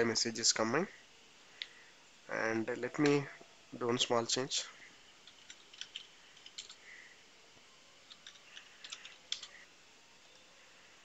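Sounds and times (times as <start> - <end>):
keyboard typing: 5.2 - 6.8, 8.1 - 9.6.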